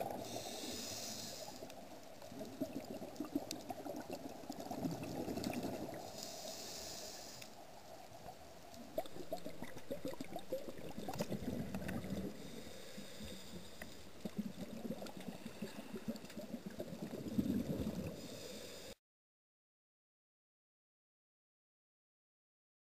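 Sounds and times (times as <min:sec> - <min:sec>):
regulator bubbles gurgling underwater: 0:00.0 - 0:06.4, 0:07.6 - 0:18.4.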